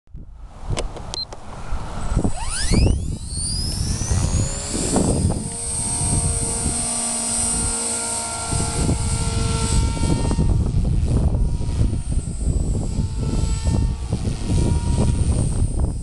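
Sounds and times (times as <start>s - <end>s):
wind buffeting microphone: 0.1s - 16.0s
rc helicopter motor whine: 0.7s - 16.0s.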